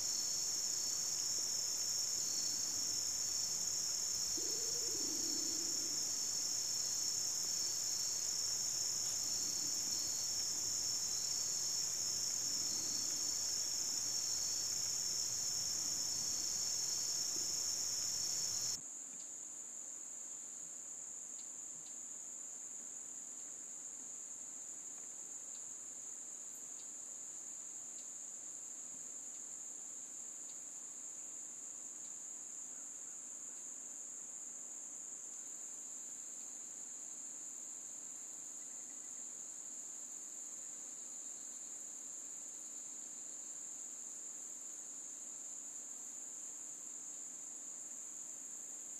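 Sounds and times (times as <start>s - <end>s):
pulsing insect chirp: 0.0s - 18.8s
crickets chirping: 0.0s - 48.9s.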